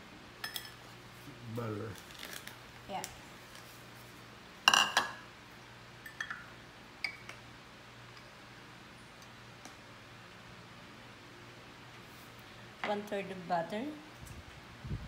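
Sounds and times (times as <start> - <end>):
dishes clattering: 4.7 - 5.2.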